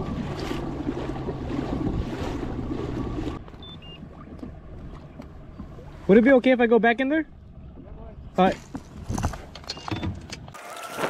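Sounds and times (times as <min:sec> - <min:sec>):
wind buffeting microphone: 0:00.0 - 0:03.5
water lapping: 0:00.0 - 0:09.5
water splashing at hull: 0:00.0 - 0:11.0
short high beeps: 0:03.6 - 0:04.0.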